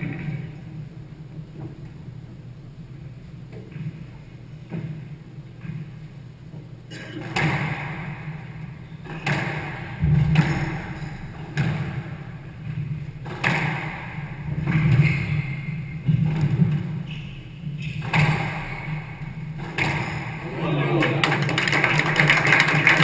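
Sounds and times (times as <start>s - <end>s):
squash ball hitting rackets and walls: 0.0s - 1.8s, 7.2s - 20.5s.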